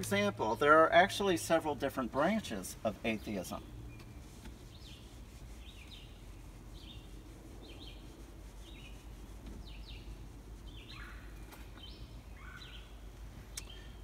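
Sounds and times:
low background rumble: 0.0 - 14.0
bird chirping: 2.5 - 14.0
eraser rubbing on whiteboard: 4.2 - 10.6.

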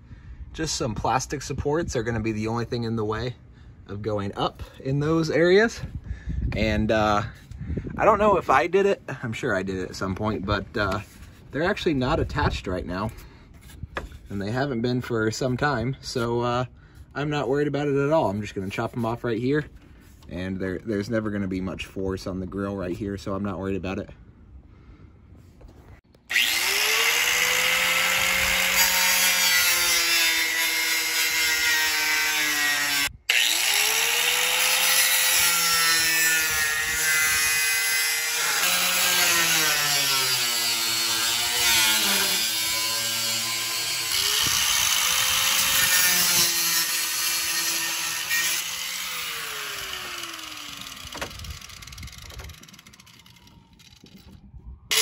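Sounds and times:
angle grinder cutting plastic: 26.2 - 54.2.

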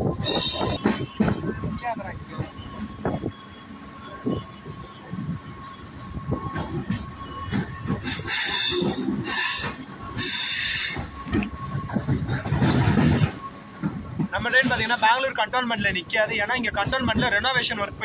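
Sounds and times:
electric train running: 0.0 - 14.3
wheels screeching: 0.0 - 15.1.

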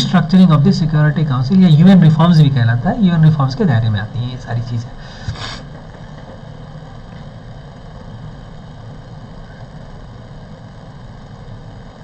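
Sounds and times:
background hiss: 0.0 - 5.7
steady low hum: 0.0 - 12.0.

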